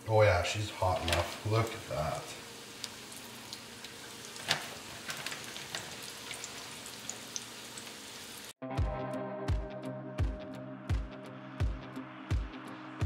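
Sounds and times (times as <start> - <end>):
fish frying in oil: 0.1 - 8.6
music with steady beat: 8.6 - 13.0.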